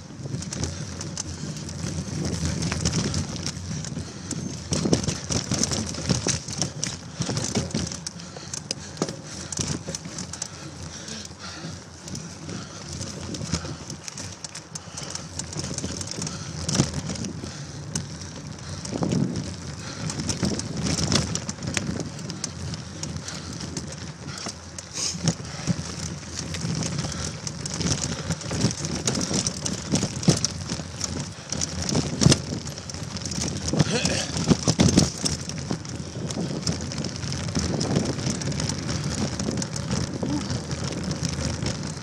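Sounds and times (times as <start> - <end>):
bicycle knocks and rattles: 0.0 - 42.0
bicycle tyres crackling through leaves: 0.0 - 42.0.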